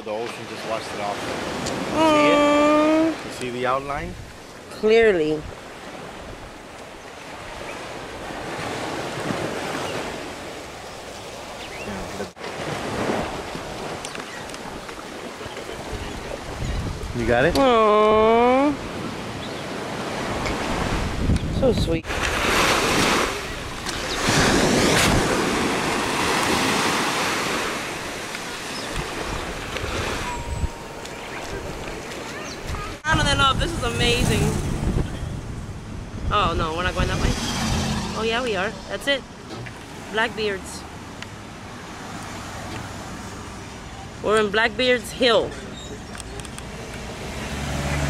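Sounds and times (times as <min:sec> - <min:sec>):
ocean surf on beach: 0:00.0 - 0:45.6
wind buffeting microphone: 0:11.8 - 0:27.1, 0:27.8 - 0:40.1.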